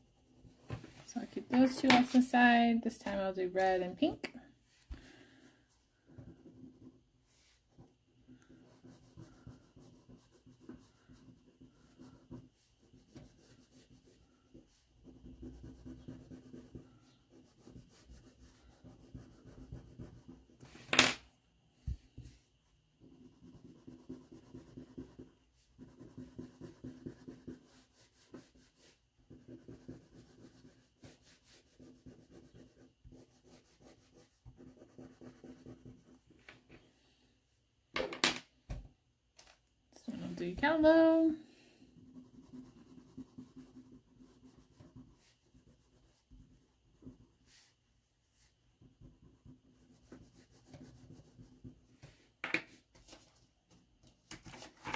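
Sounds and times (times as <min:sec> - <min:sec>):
crayon scribbling on paper: 0:06.0 - 0:20.6, 0:23.0 - 0:36.3, 0:41.9 - 0:51.9.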